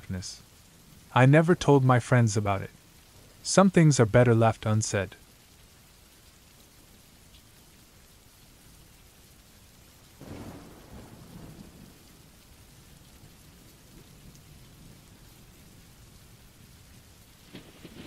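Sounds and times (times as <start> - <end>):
steady rain: 0.0 - 18.0
thunder rumble: 10.2 - 18.0.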